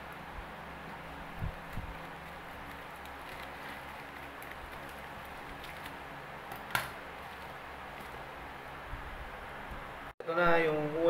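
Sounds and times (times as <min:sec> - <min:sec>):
plastic wrap crinkling: 0:01.0 - 0:08.3
plastic tearing: 0:01.5 - 0:08.2.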